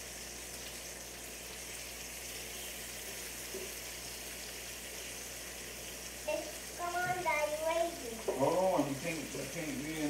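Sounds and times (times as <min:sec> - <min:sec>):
bacon sizzling on a grill: 0:00.0 - 0:10.0.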